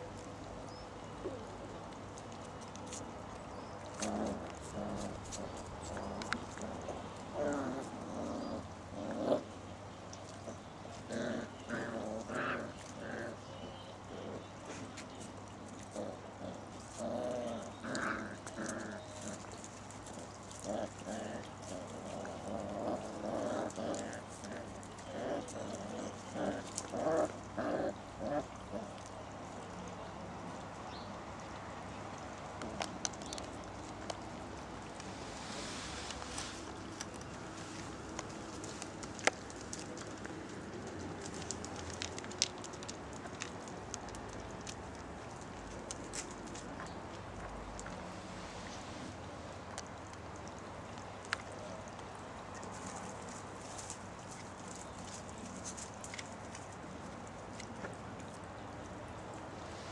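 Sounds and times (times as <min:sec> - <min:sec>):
steady outdoor hiss: 0:00.0 - 0:59.9
puppies growling: 0:01.2 - 0:29.6, 0:32.2 - 0:50.7
dog claws ticking on concrete: 0:38.0 - 0:48.0.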